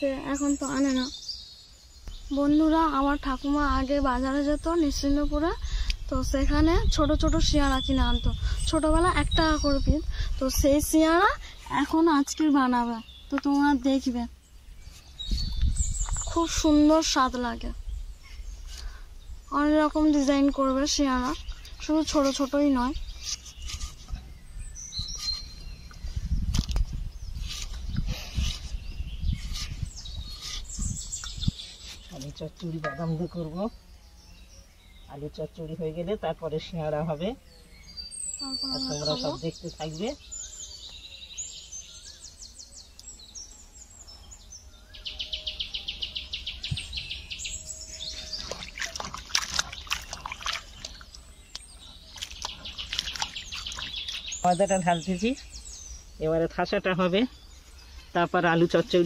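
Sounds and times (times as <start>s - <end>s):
bird chirping: 0.0s - 59.0s
potatoes splashing in water bowl: 48.4s - 51.6s, 52.2s - 54.3s.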